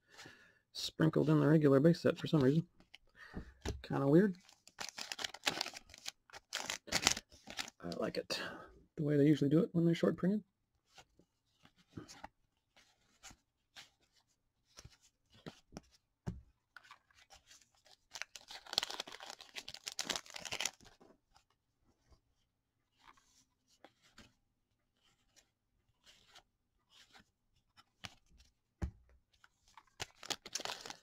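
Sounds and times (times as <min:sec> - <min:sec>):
cards sliding and flicking: 0:25.3 - 0:27.3.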